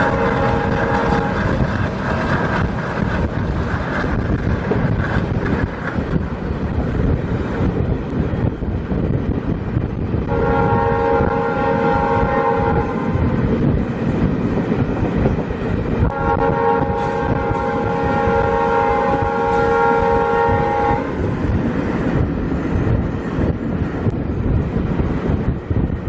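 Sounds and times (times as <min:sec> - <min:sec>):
multi-tone train horn: 0:00.0 - 0:01.7, 0:10.3 - 0:13.5, 0:16.0 - 0:21.3
train running over rails: 0:00.0 - 0:26.0.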